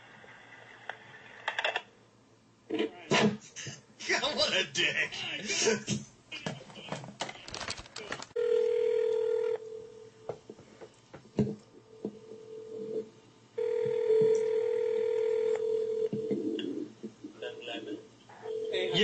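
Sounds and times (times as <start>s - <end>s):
phone ringback tone: 8.4s - 10.1s, 13.6s - 16.3s, 18.4s - 19.0s.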